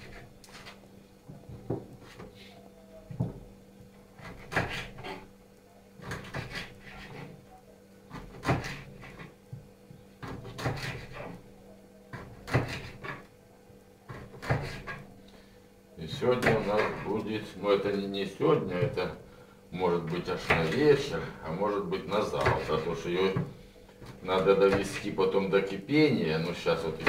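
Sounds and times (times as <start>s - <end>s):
knife chopping on wooden board: 4.2s - 5.2s, 6.0s - 7.2s, 8.1s - 9.3s, 10.2s - 11.4s, 12.2s - 13.2s, 14.1s - 15.0s, 22.4s - 22.8s.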